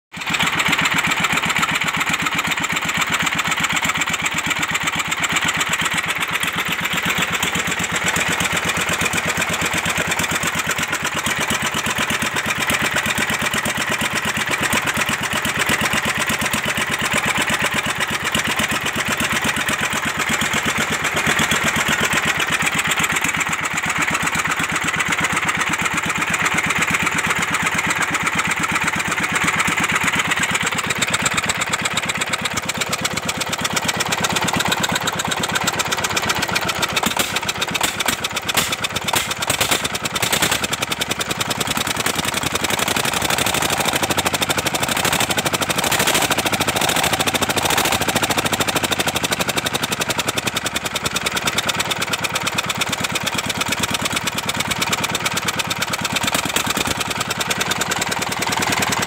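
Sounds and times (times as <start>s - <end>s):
diesel engine running: 0.2s - 59.0s.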